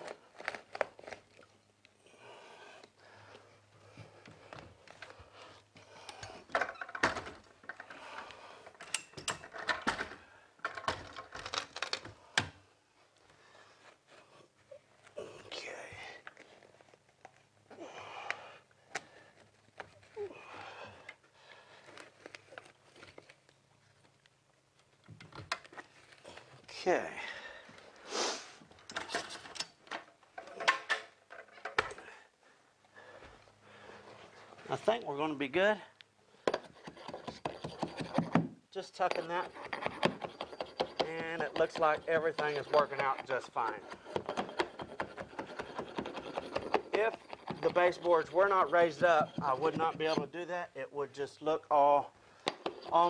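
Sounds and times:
carpet stretcher clicks and scrapes: 36.6 - 50.4.

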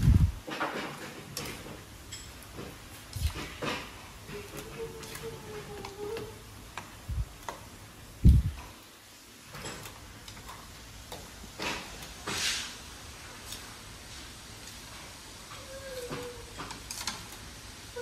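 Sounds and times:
chopsticks scraping metal wok: 11.5 - 12.8.

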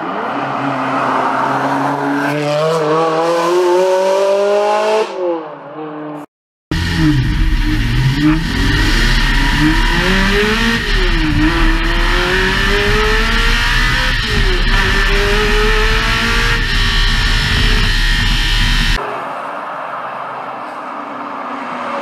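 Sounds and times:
car engine revving: 6.7 - 19.0.

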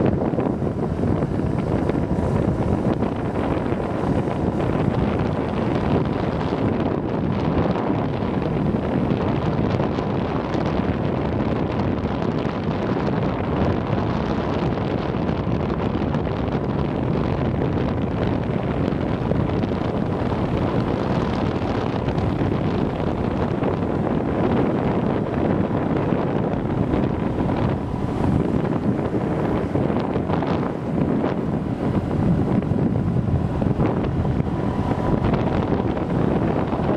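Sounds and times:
motorbike engine running: 0.0 - 16.1, 16.7 - 36.9
wind noise on microphone: 0.0 - 36.9.

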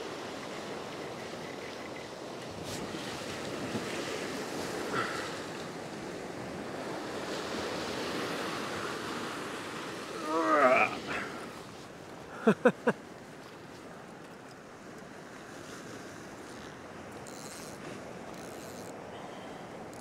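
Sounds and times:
surf washing around rocks: 0.0 - 13.0.

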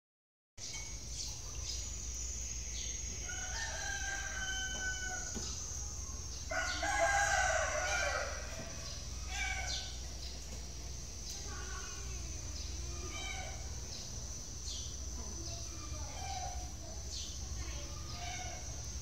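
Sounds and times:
long drawn-out animal calls: 6.6 - 10.0, 12.9 - 13.8, 18.0 - 18.8.

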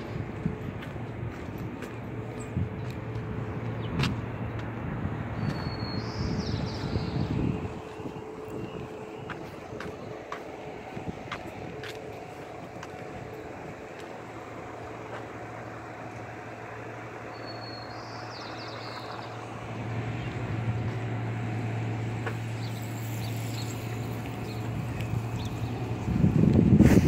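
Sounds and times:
engine hum: 0.0 - 27.0
outdoor background noise: 0.0 - 27.0
bird chirp: 5.4 - 10.0, 17.2 - 20.4.

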